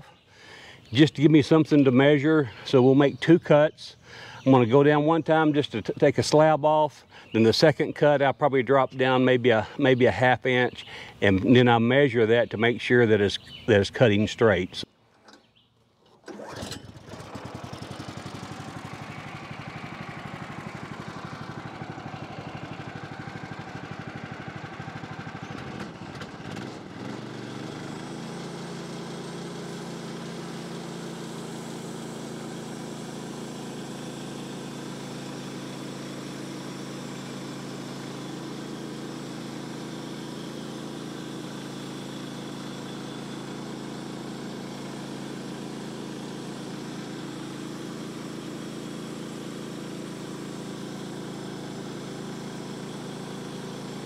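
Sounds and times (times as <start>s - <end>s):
gas engine running: 16.2s - 54.0s.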